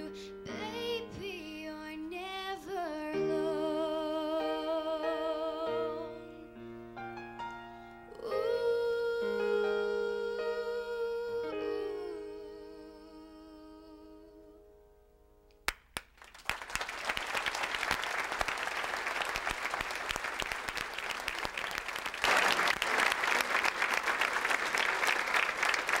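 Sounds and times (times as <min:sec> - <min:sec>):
audience applause: 0:16.0 - 0:26.0.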